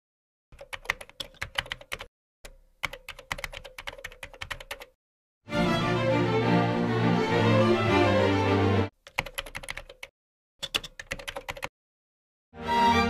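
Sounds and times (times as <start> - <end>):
keyboard typing clicks: 0.6 - 5.0, 9.1 - 11.7.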